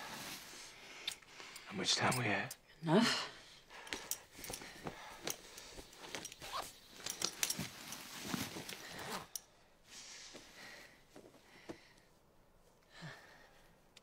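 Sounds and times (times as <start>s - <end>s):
fabric rustling: 0.0s - 0.8s, 4.0s - 11.5s
metal fasteners clicking: 3.9s - 8.1s.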